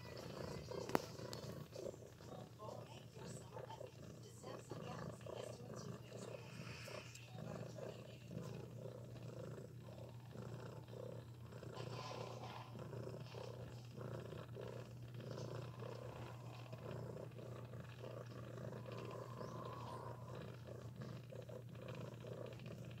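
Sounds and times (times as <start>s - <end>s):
cat purring: 0.0s - 23.0s.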